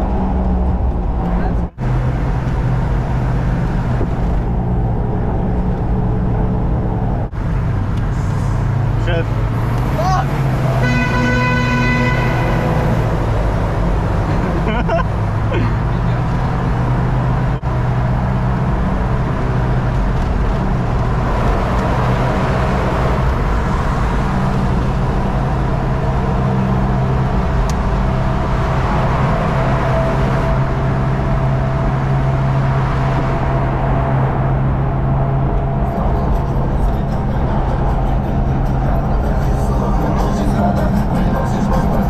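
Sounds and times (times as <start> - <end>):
low engine drone: 0.0 - 42.0
wind and tyre noise: 0.0 - 42.0.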